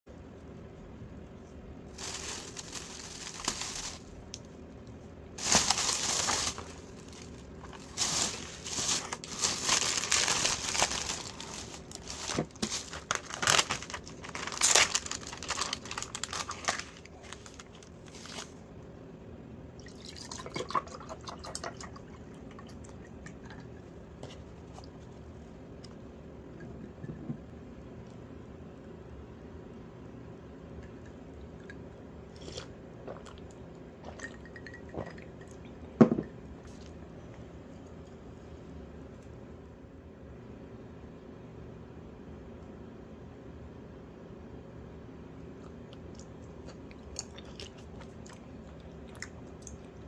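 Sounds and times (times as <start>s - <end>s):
plastic bag rustling: 1.9s - 4.3s, 5.4s - 18.6s
plastic film crinkling: 1.9s - 4.4s, 5.4s - 18.6s.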